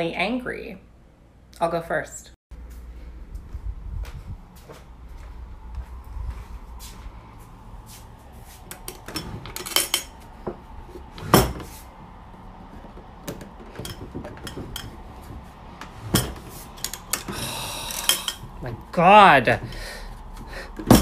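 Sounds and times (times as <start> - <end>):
drawer scrape: 8.5 - 11.9, 12.7 - 18.6
metal ring pulls clinking: 8.8 - 10.2, 16.1 - 18.5.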